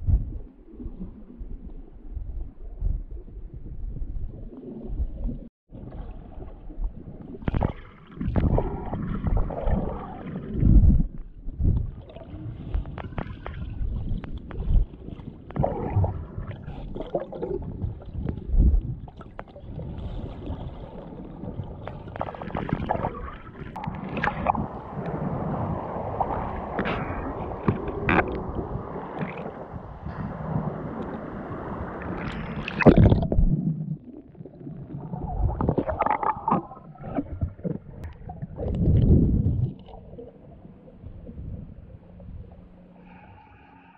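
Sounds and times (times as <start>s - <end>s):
water sloshing and gurgling: 0.0s - 43.9s.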